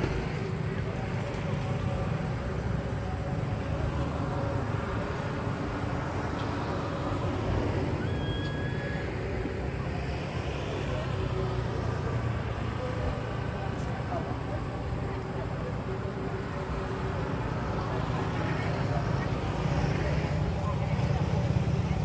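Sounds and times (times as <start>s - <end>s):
outdoor background rumble: 0.0s - 22.0s.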